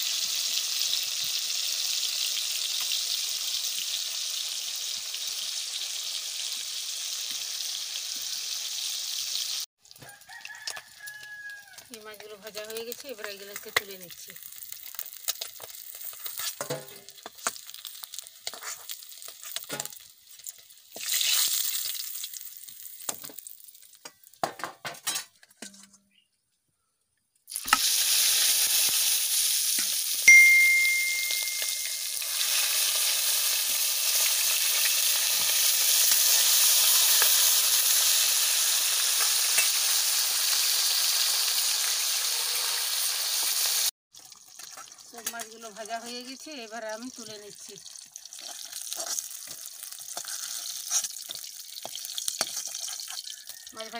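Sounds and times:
fish sizzling in hot oil: 0:00.0 - 0:24.4, 0:27.5 - 0:53.9
steel ladle clinking on pan: 0:30.3 - 0:32.1.

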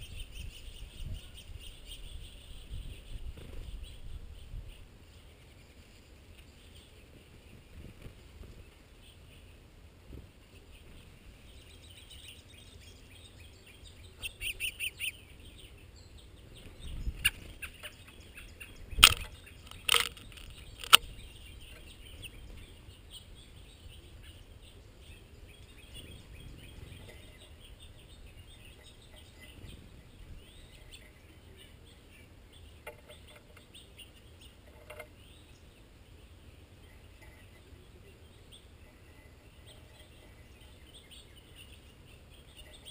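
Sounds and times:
songbirds chirping: 0:00.0 - 0:42.9.

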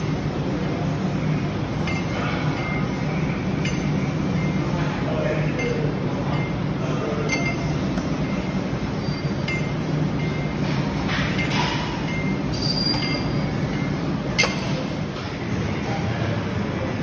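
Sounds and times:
steady low hum: 0:00.0 - 0:17.0
metallic clinks of gym equipment: 0:05.5 - 0:07.8, 0:09.0 - 0:15.0.

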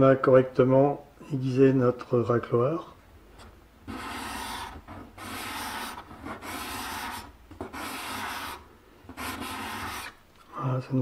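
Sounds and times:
scraper scraping wooden board: 0:03.9 - 0:10.2.

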